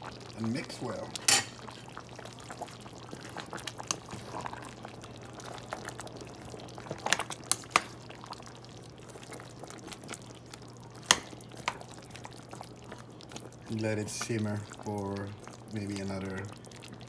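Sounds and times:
spoon stirring thick stew: 0:11.0 - 0:16.5.

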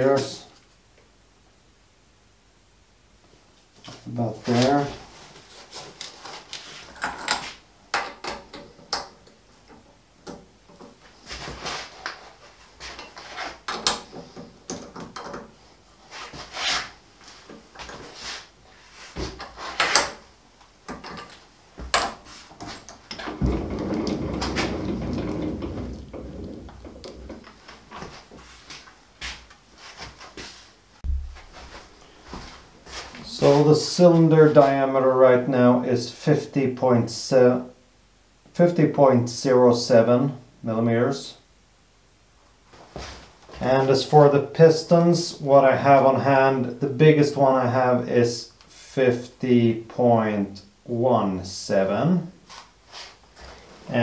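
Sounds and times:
steady noise: 0:17.0 - 0:28.8, 0:30.8 - 0:42.6.

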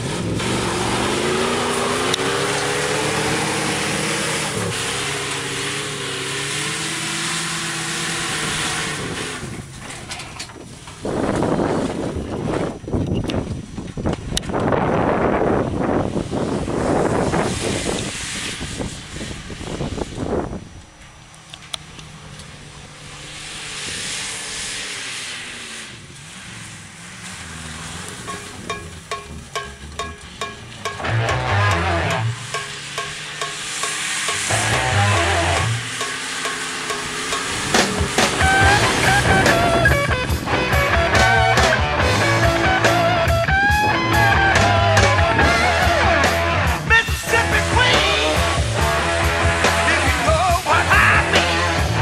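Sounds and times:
truck engine revving hard: 0:00.0 - 0:10.0, 0:22.0 - 0:52.0
spinning tyres throwing dirt: 0:00.0 - 0:43.9.

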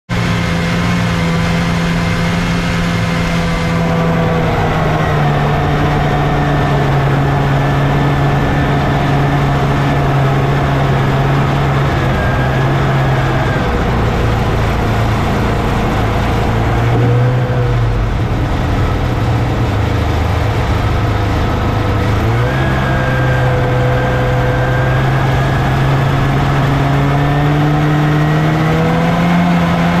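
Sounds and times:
snowmobile two-stroke engine running: 0:00.1 - 0:30.0.

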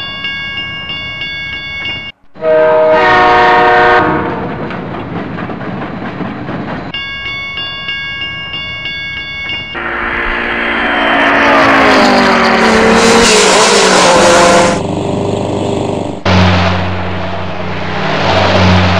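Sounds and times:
level crossing bell ringing: 0:00.0 - 0:02.2, 0:06.9 - 0:10.1
train passing on rails: 0:00.0 - 0:18.9
train horn: 0:02.4 - 0:04.5, 0:09.8 - 0:14.8.

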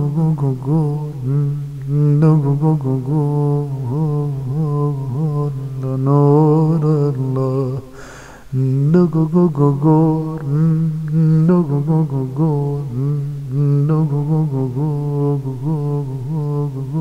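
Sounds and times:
man singing unaccompanied: 0:00.0 - 0:17.0
man drawing breath: 0:07.9 - 0:08.6.

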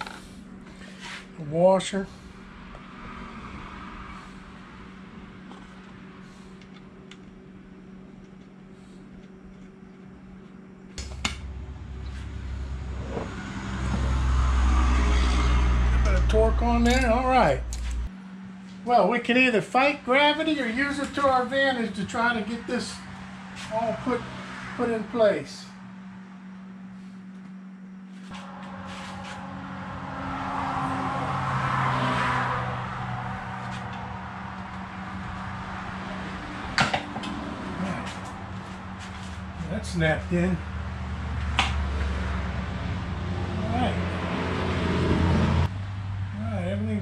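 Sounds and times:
vehicle passing by: 0:00.0 - 0:06.8, 0:11.3 - 0:18.6, 0:19.9 - 0:27.3, 0:28.1 - 0:47.0
low steady rumble: 0:00.0 - 0:31.4
steady low hum: 0:00.0 - 0:31.7, 0:32.5 - 0:44.2.

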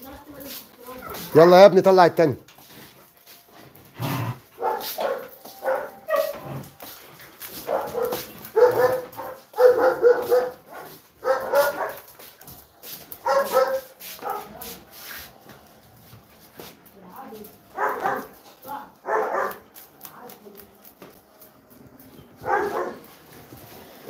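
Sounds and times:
dogs barking: 0:04.5 - 0:06.8, 0:07.5 - 0:12.2, 0:12.9 - 0:14.6, 0:17.7 - 0:19.8, 0:22.4 - 0:23.3.

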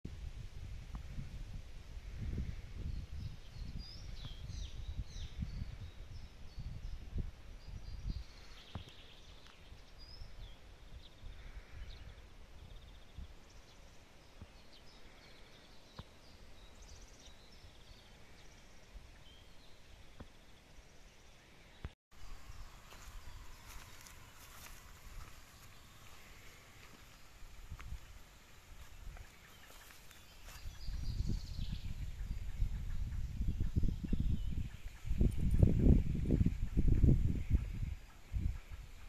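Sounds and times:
wind rumble on microphone: 0:00.1 - 0:13.7, 0:22.3 - 0:39.0
songbirds chirping and singing: 0:07.6 - 0:39.0.

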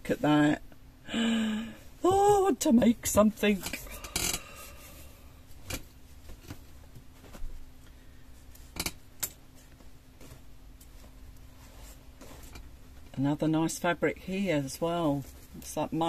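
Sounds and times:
fabric rustling: 0:02.0 - 0:13.2, 0:14.4 - 0:16.0.

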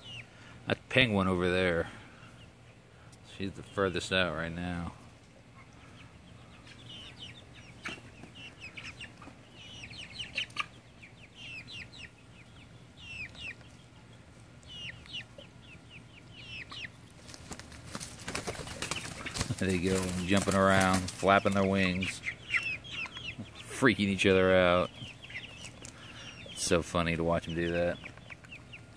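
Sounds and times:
chicks peeping: 0:00.0 - 0:28.9
wings flapping: 0:17.2 - 0:21.7.

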